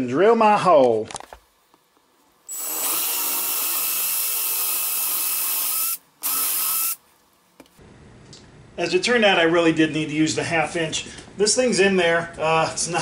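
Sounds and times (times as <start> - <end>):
cordless drill boring into wood: 2.5 - 7.0.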